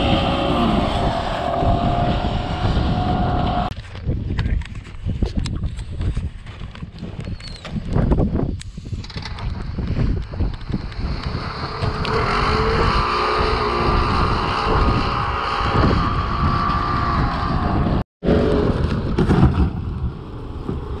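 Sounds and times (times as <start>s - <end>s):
steady whine: 0.0s - 3.7s
wind on microphone: 0.0s - 21.0s.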